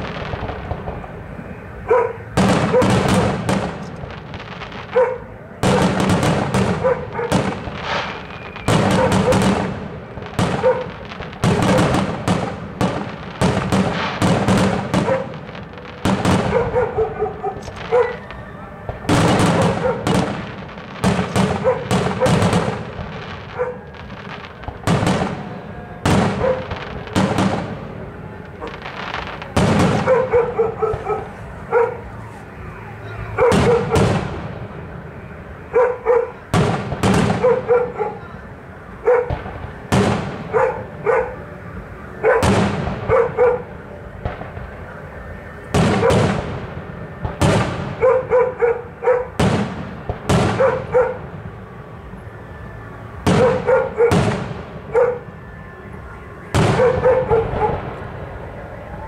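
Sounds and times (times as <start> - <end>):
fireworks bangs with crackle: 0.0 - 59.0
dog barking: 1.8 - 3.0, 4.9 - 5.9, 6.7 - 7.4, 8.9 - 9.5, 10.5 - 12.0, 15.0 - 15.4, 16.3 - 18.2, 19.6 - 20.2, 21.4 - 22.7, 23.5 - 23.9, 26.3 - 26.8, 29.9 - 32.1, 33.4 - 34.1, 35.7 - 36.4, 37.3 - 38.3, 39.0 - 39.4, 40.5 - 41.4, 42.2 - 42.5, 43.1 - 43.7, 46.0 - 46.2, 48.0 - 49.4, 50.5 - 51.2, 53.3 - 54.2, 54.9 - 55.2, 56.7 - 57.8.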